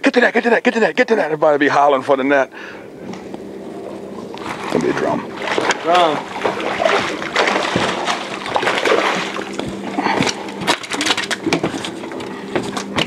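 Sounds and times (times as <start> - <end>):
fish flopping on boat deck: 3.0 - 13.0
fish splashing at water surface: 4.3 - 11.4.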